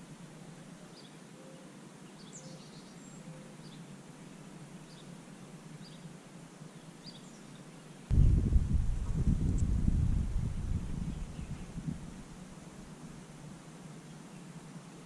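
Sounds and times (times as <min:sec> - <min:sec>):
low outdoor background noise: 0:00.0 - 0:15.0
loud low rushing noise: 0:08.1 - 0:12.4.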